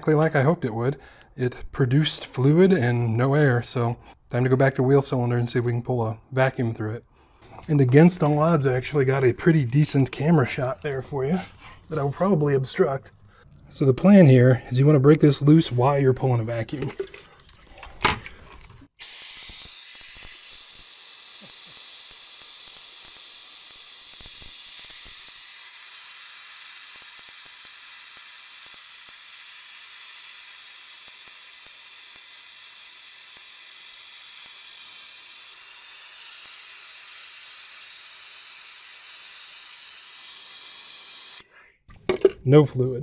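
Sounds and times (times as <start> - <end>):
vacuum brake bleeder hissing: 19.0 - 41.4.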